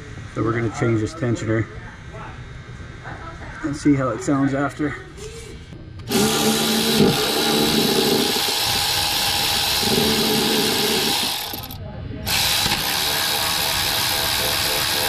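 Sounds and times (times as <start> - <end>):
power ratchet whirring: 6.0 - 15.0.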